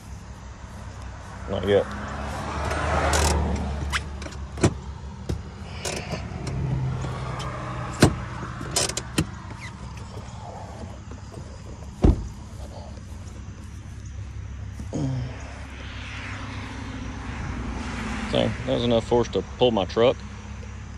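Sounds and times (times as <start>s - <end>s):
engine humming: 0.0s - 20.9s
sharp knocks and clicks: 2.7s - 9.6s.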